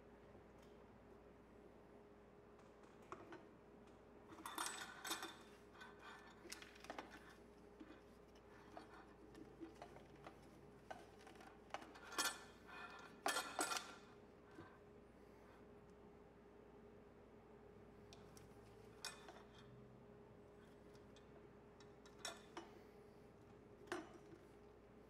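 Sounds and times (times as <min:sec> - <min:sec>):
metal parts clinking and rattling: 0:04.3 - 0:14.1.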